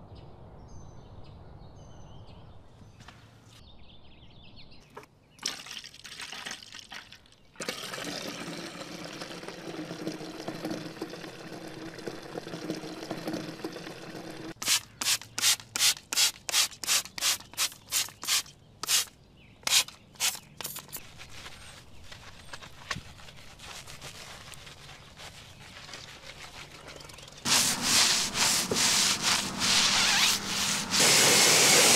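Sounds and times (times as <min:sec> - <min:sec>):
scrubbing car surface: 0:19.8 - 0:31.9.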